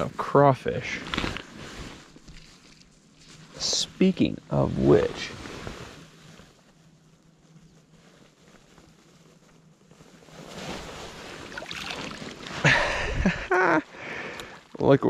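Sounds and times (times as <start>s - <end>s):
water sloshing and splashing: 10.6s - 12.7s
loud splash: 11.4s - 12.6s.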